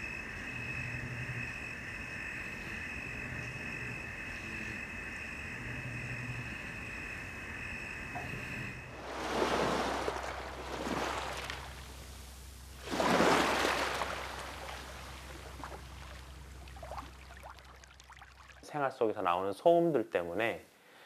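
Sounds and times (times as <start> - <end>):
sea waves washing in: 7.2 - 18.6.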